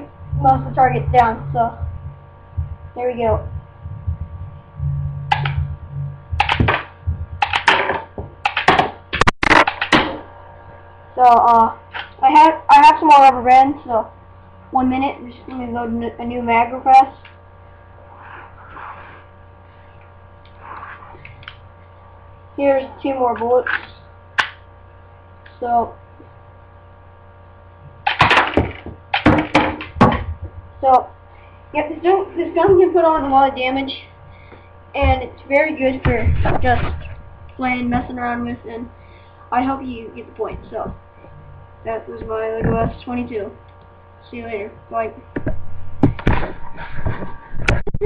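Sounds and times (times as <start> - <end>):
electrical hum: 0.0 - 48.0
targets knocked down: 28.1 - 30.2.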